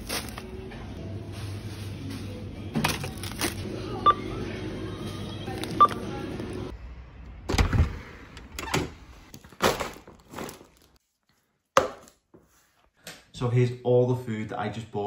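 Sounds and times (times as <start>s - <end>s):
store hum: 0.0s - 11.0s
checkout scanner beep: 3.9s - 4.5s, 5.7s - 6.5s.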